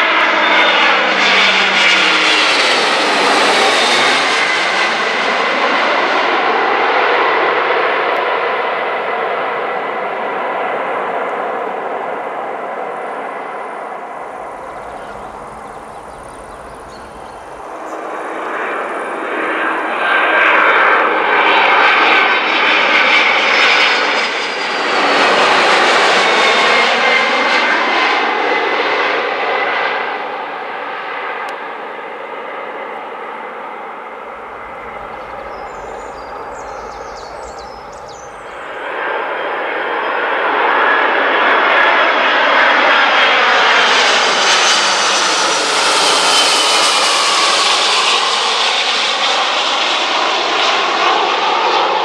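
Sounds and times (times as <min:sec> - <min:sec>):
jet engines roaring overhead: 0:00.0 - 0:52.0.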